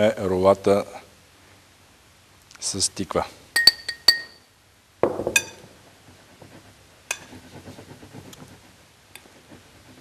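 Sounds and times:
fork clinking against glass bowl: 3.6s - 4.4s
soft thud: 5.0s - 5.4s.

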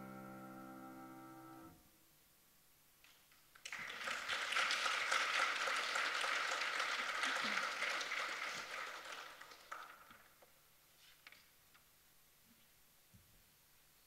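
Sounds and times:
audience applauding: 3.6s - 10.3s.

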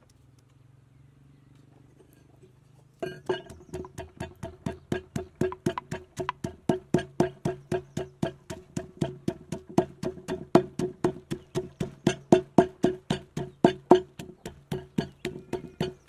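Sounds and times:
wooden pestle pounding in mortar: 3.0s - 16.0s.

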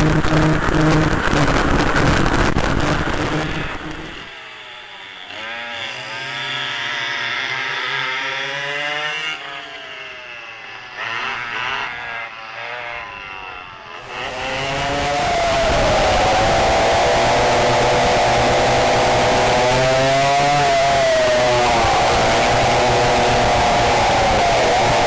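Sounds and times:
rushing noise: 0.0s - 4.3s, 14.0s - 25.0s
two-stroke kart engines buzzing: 0.0s - 25.0s.

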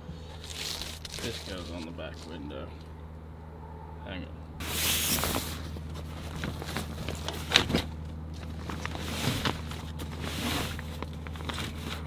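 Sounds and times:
low hum: 0.0s - 12.0s
bag and foil rustling: 0.3s - 2.4s, 4.6s - 12.0s.

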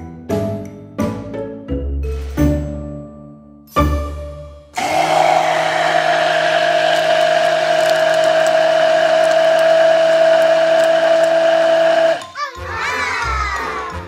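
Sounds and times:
blender motor whine: 4.8s - 12.2s.

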